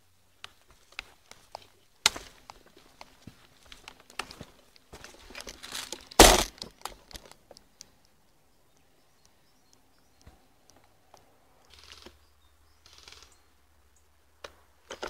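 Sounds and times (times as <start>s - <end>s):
twig crackle: 0.4s - 8.4s
footsteps crunching on dry leaves: 0.7s - 6.7s.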